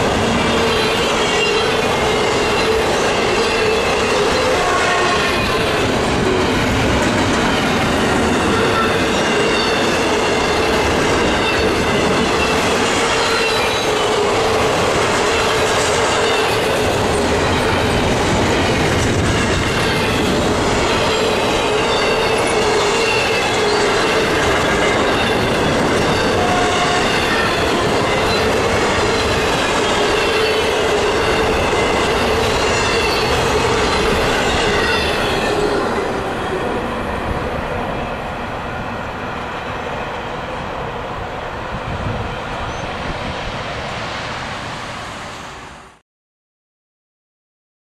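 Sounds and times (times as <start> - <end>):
freight train rumbling past: 0.0 - 46.0
high wheel squeal: 0.4 - 6.0, 8.4 - 14.4, 18.6 - 28.6, 29.2 - 36.0, 42.5 - 43.2.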